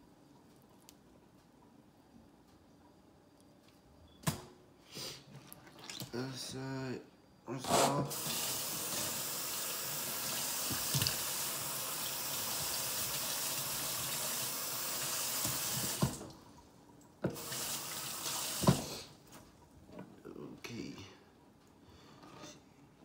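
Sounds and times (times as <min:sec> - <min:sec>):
faucet running into metal sink: 0:08.1 - 0:16.3, 0:17.3 - 0:18.8.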